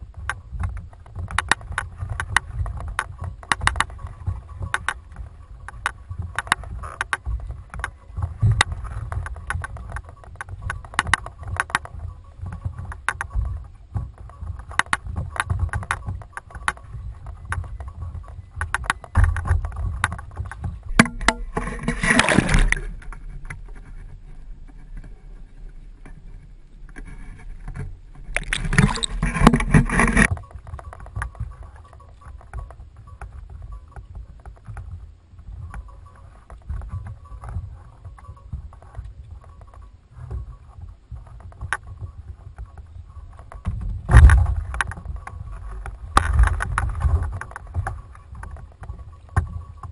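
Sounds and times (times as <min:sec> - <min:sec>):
small knocks and clicks: 0:00.0 - 0:49.9
wind rumble on microphone: 0:00.0 - 0:49.9
water lapping against kayak hull: 0:21.4 - 0:23.0, 0:28.2 - 0:49.8.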